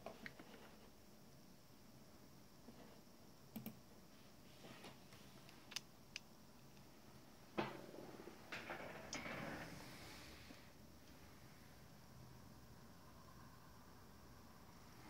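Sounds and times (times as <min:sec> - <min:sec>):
computer mouse clicks: 0:03.5 - 0:03.8.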